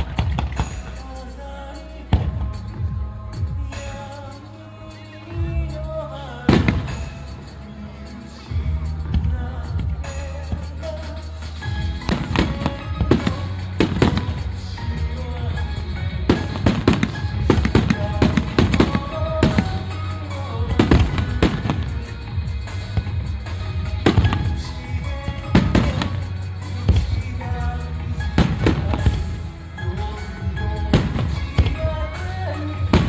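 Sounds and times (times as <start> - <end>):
firework shells bursting: 0.0 - 1.3, 6.5 - 7.7, 10.5 - 14.8, 15.6 - 27.4, 28.1 - 29.5.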